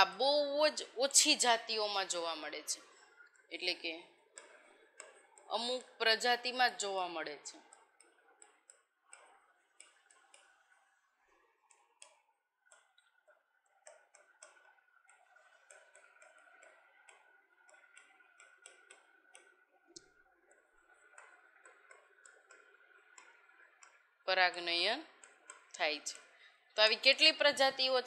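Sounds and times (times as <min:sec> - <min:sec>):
marker pen on writing board: 0:04.4 - 0:26.4.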